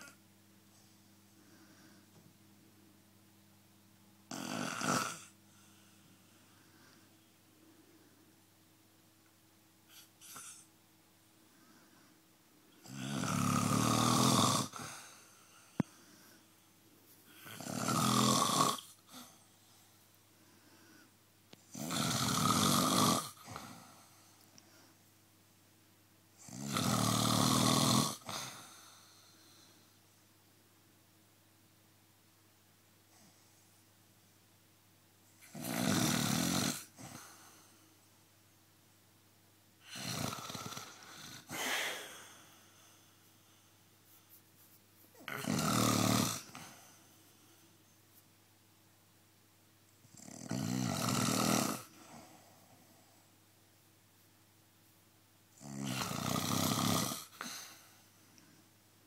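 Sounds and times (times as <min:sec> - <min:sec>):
person snoring: 0:04.3 - 0:07.1, 0:12.8 - 0:16.4, 0:17.3 - 0:19.5, 0:21.7 - 0:24.2, 0:26.4 - 0:29.8, 0:35.4 - 0:37.8, 0:39.8 - 0:43.1, 0:45.2 - 0:47.1, 0:50.1 - 0:53.1, 0:55.6 - 0:58.0.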